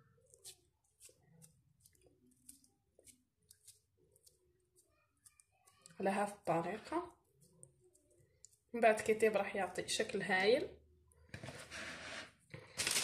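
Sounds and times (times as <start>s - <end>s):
fingers molding minced meat: 0.0s - 6.0s.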